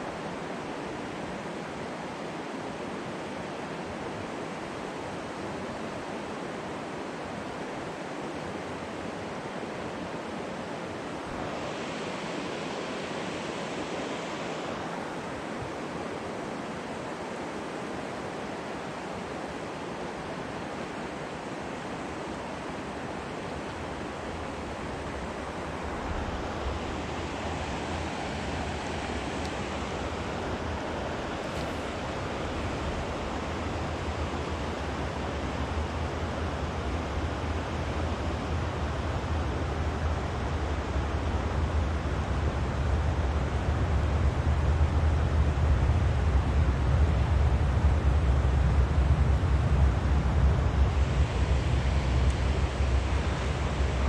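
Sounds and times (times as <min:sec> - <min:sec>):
river flowing over rocks: 0:00.0 - 0:41.2
wind rumble on microphone: 0:22.9 - 0:54.0.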